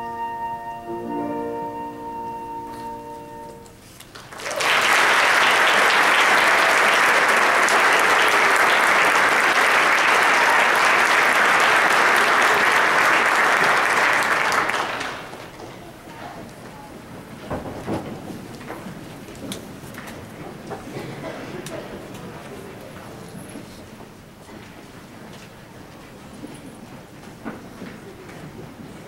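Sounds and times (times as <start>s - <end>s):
held music chord: 0.0s - 3.8s
audience applause: 4.0s - 16.0s.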